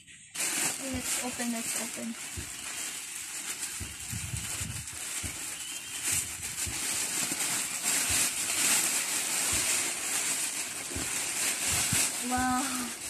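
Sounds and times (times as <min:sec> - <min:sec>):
rummaging and rustling: 0:00.3 - 0:13.0
soft bumps: 0:03.6 - 0:08.7.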